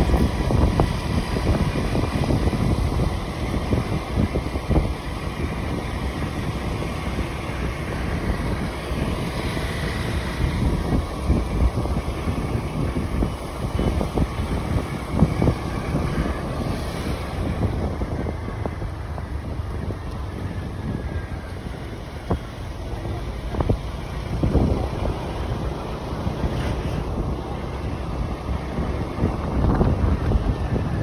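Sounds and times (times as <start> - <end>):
scooter rumble: 0.0 - 31.0
wind buffeting microphone: 0.0 - 31.0.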